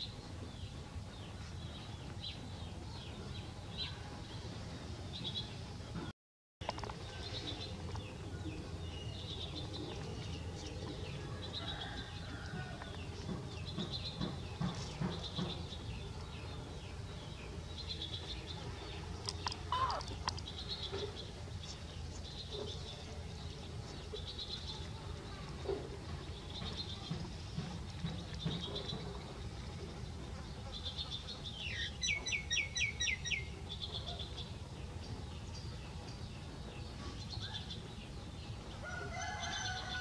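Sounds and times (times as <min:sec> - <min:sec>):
gliding animal call: 0:19.5 - 0:20.2.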